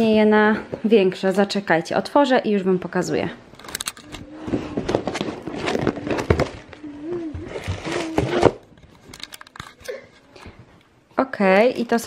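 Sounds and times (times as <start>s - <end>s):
cardboard box being opened: 4.3s - 6.8s, 7.4s - 8.7s.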